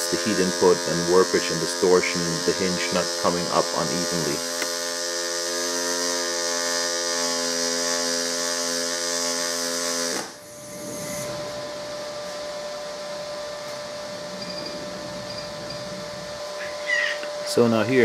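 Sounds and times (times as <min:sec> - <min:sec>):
welding arc buzzing: 0:00.0 - 0:18.0
faint steady hum: 0:10.4 - 0:18.0
thin high tone: 0:12.1 - 0:17.7.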